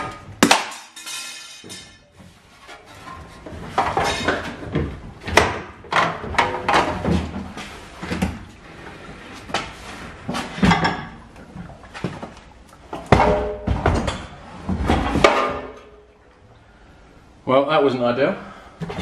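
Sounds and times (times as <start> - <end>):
metal parts clanking and rattling: 0.0 - 4.6.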